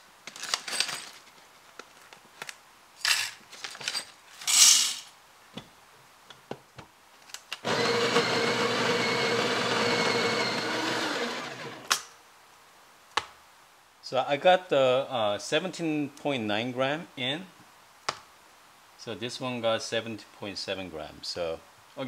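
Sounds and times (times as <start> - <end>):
coffee grinder running: 7.6 - 11.9.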